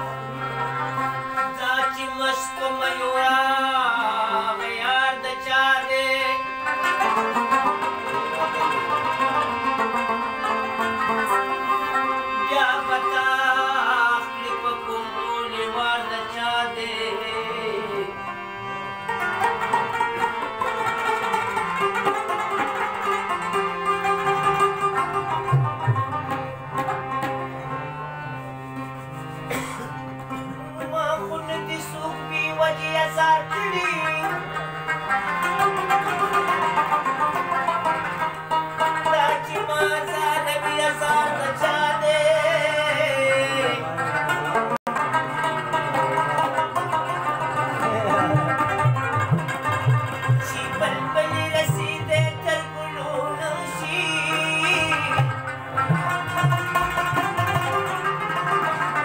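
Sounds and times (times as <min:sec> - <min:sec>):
held harmonium notes: 0:00.0 - 0:59.0
plucked rubab melody: 0:00.0 - 0:59.0
tabla drumming: 0:19.1 - 0:27.7, 0:35.1 - 0:42.2, 0:44.2 - 0:59.0.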